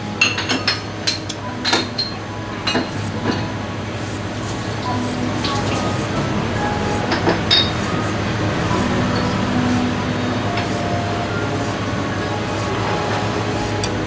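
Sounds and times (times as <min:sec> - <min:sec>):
kitchen room hum: 0:00.0 - 0:14.0.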